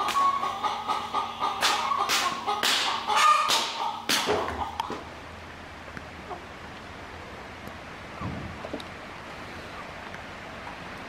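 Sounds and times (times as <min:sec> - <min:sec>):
chickens squawking and clucking: 0:00.0 - 0:05.2, 0:06.1 - 0:06.6, 0:08.0 - 0:11.0.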